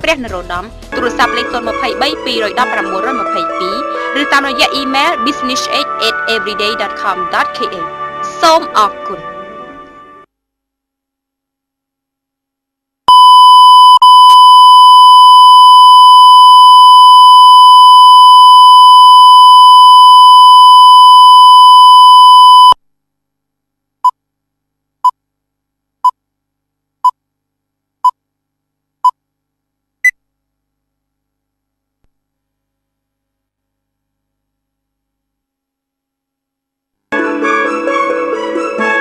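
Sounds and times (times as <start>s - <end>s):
higher-pitched beep: 13.1s - 22.8s
loud reference tone: 13.1s - 22.8s.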